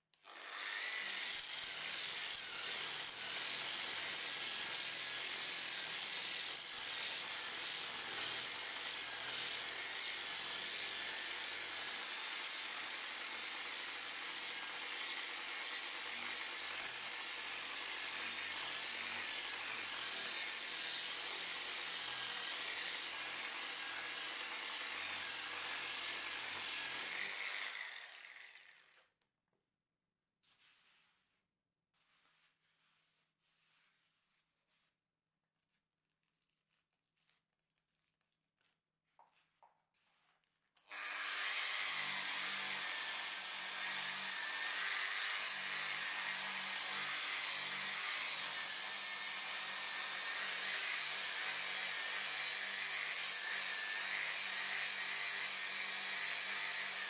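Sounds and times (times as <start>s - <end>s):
angle grinder sanding wood: 0.2s - 28.7s, 40.9s - 57.0s.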